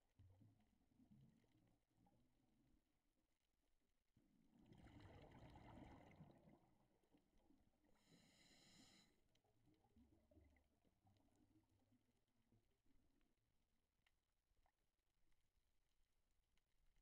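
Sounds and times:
muffled scuba regulator breathing: 0:08.0 - 0:09.2.

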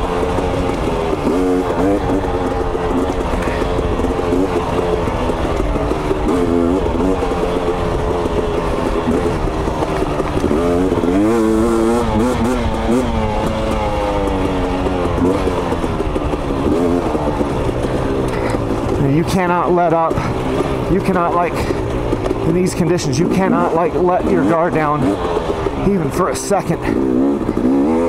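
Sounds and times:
two-stroke motorcycle engine revving: 0:00.0 - 0:28.0.

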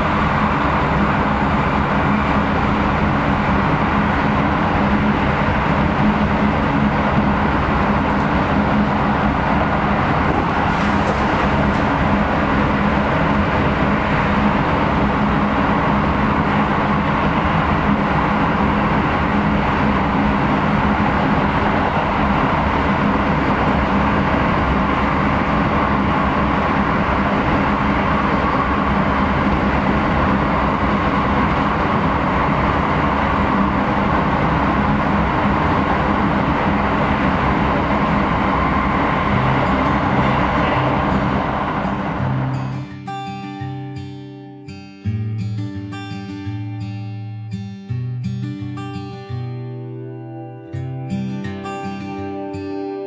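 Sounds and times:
low hum: 0:00.0 - 0:42.8
train wheels rumbling on rails: 0:00.0 - 0:42.9.

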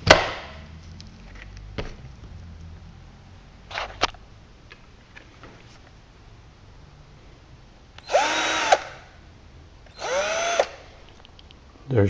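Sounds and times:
drill scraping on wood: 0:08.0 - 0:09.0, 0:09.9 - 0:10.8.

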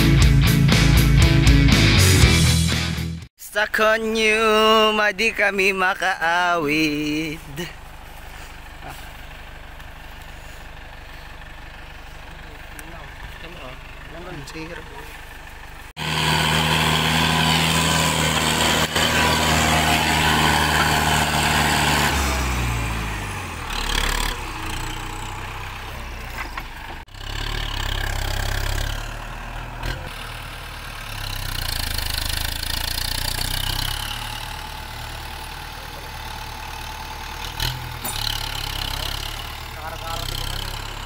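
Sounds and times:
tractor diesel engine revving: 0:00.0 - 0:41.0.

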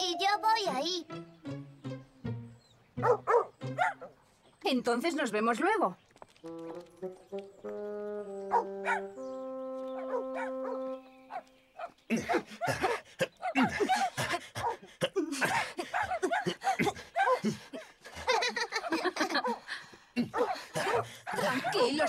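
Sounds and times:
background music held notes: 0:00.0 - 0:04.4, 0:06.4 - 0:11.8
cartoon dogs barking: 0:03.0 - 0:04.2, 0:08.4 - 0:09.2, 0:09.9 - 0:14.9, 0:15.9 - 0:16.6, 0:20.2 - 0:22.0.

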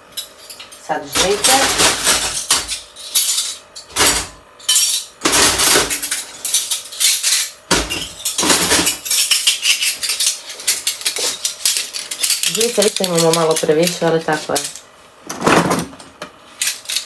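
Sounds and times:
metal spoons clinking: 0:00.2 - 0:03.9, 0:05.8 - 0:14.8.

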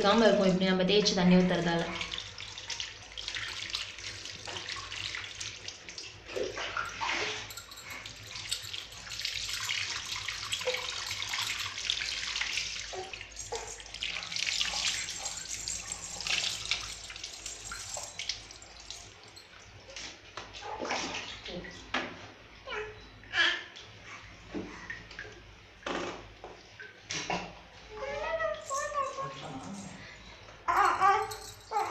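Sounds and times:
water pouring and splashing: 0:01.4 - 0:20.0
water splashing on tiled floor: 0:01.6 - 0:19.4.

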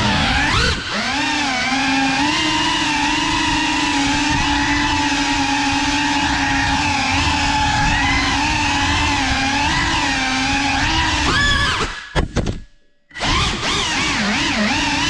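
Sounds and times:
drone motors whining: 0:00.0 - 0:12.2, 0:13.1 - 0:15.0.

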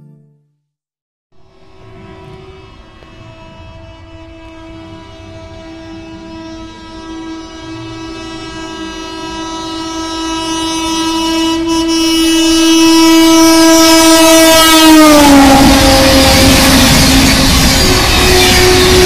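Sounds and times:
train coaches rushing past: 0:01.4 - 0:10.2, 0:13.7 - 0:19.0
train horn long blast: 0:01.4 - 0:19.0.

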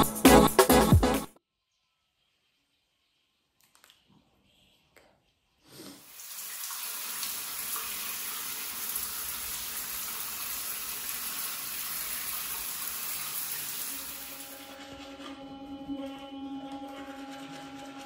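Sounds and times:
shower spraying on tiles: 0:05.8 - 0:15.2.

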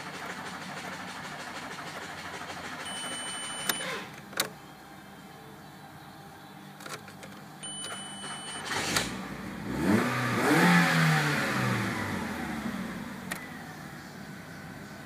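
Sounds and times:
car engine revving: 0:07.9 - 0:15.0.

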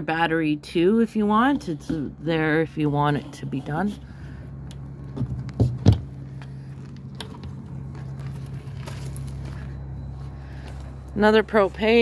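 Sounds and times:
steady low hum: 0:00.0 - 0:12.0
footsteps on gravel: 0:05.2 - 0:12.0.

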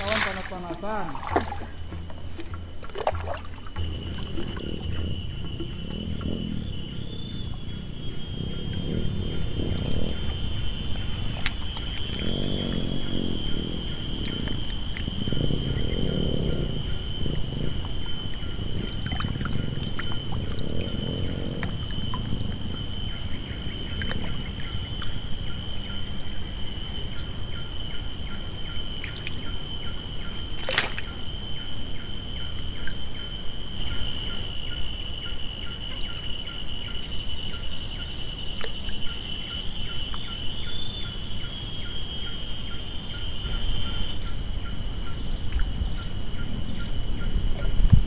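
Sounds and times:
high-pitched insect drone: 0:00.0 - 0:48.0
pulsing insect chirp: 0:00.0 - 0:48.0
wind rumble on microphone: 0:03.8 - 0:25.0, 0:45.3 - 0:48.0.

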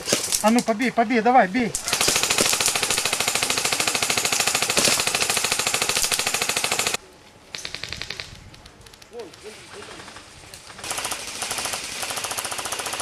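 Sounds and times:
airsoft gun bursts: 0:01.7 - 0:07.0, 0:10.8 - 0:13.0.

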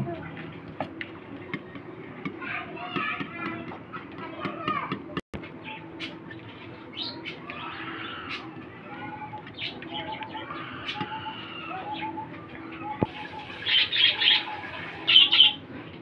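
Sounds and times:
birds chirping and cooing: 0:05.6 - 0:15.7.

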